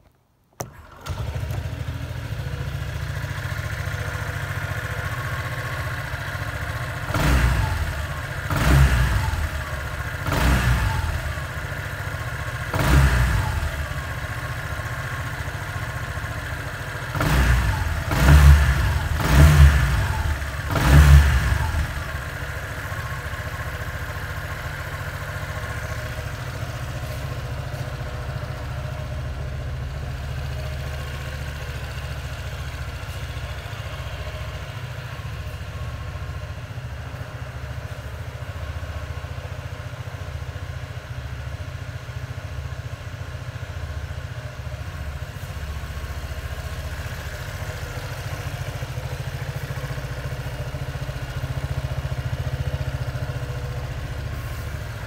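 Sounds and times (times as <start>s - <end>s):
scooter engine starting and idling: 0.5s - 55.0s
scooter engine revving: 0.6s - 29.6s.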